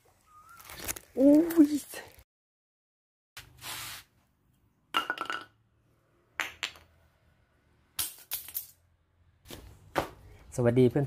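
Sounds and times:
wood and tools knocking on concrete: 0:05.0 - 0:05.5, 0:06.4 - 0:07.0.

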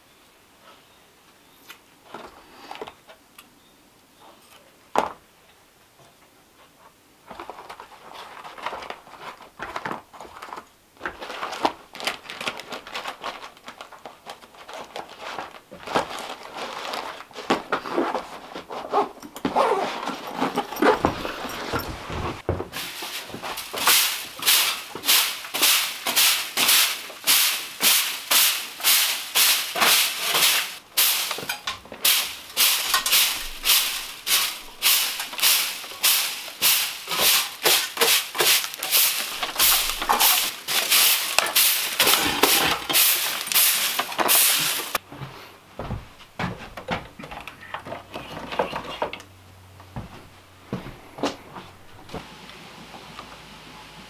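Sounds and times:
broom sweeping floor: 0:15.1 - 0:46.6.

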